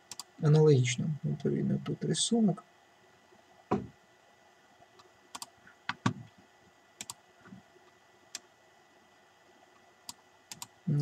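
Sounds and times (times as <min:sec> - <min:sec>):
computer mouse clicks: 0:00.0 - 0:00.3, 0:05.0 - 0:06.2, 0:07.0 - 0:07.2, 0:10.0 - 0:10.7.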